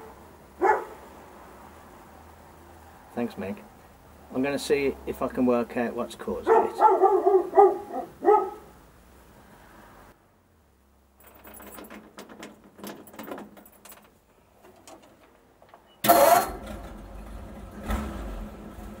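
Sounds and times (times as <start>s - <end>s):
keys jangling in ignition: 11.2s - 14.1s
truck engine starting and running: 14.6s - 19.0s.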